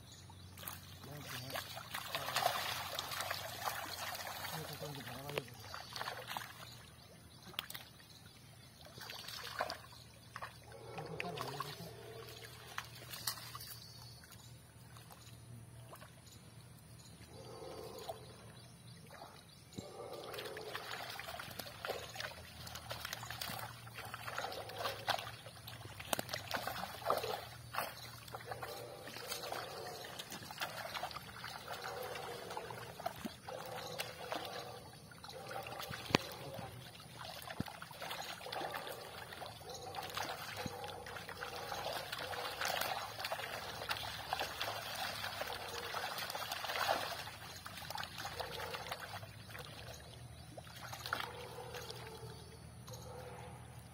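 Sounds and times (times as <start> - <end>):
pond water sloshing: 0.0 - 53.9
small splashes: 0.5 - 16.2, 19.0 - 52.4
water running off net: 1.1 - 6.4, 35.4 - 49.2.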